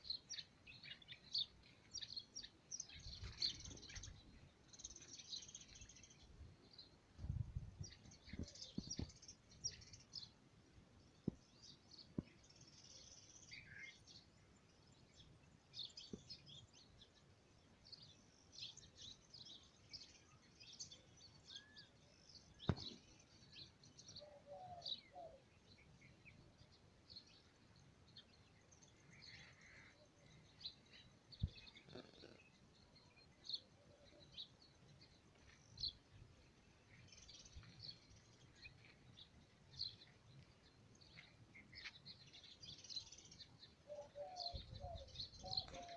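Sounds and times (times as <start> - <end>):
small birds chirping: 0.0 - 45.9.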